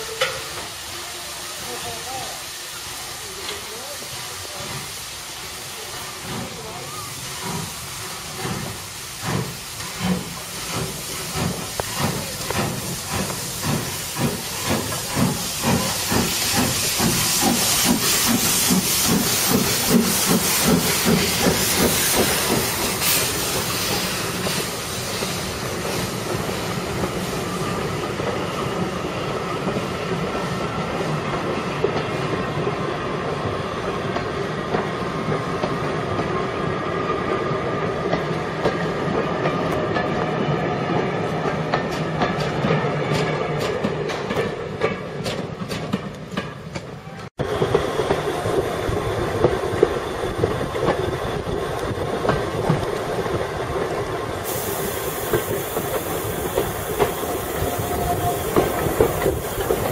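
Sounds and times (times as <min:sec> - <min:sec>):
rail clicks: 0:00.0 - 0:01.0, 0:02.8 - 0:59.9
train rolling: 0:00.0 - 0:59.9
steam locomotive exhaust chuffs: 0:02.4 - 0:32.3, 0:47.4 - 0:59.9.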